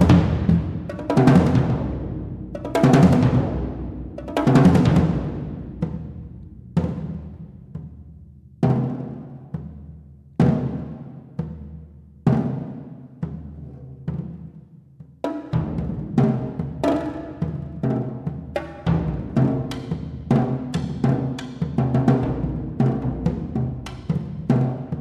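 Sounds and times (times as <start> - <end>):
drums struck with mallets: 0.0 - 14.5.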